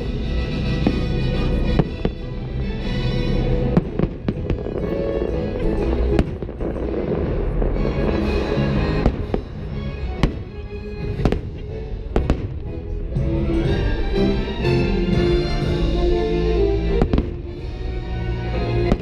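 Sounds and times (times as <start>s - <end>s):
music over loudspeakers: 0.0s - 19.0s
fireworks bangs: 0.7s - 2.4s, 3.6s - 12.7s, 17.0s - 17.7s.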